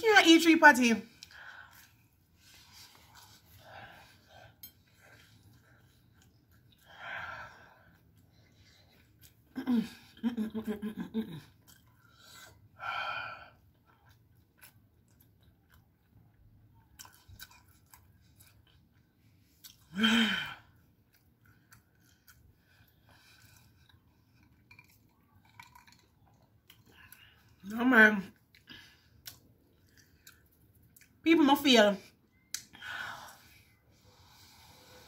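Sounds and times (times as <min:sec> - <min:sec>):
chewing and mouth clicks: 0:04.6 - 0:07.0, 0:07.9 - 0:09.6, 0:11.4 - 0:12.7, 0:13.6 - 0:19.9, 0:20.9 - 0:27.6, 0:28.3 - 0:31.2
woman groaning and moaning: 0:19.9 - 0:20.6.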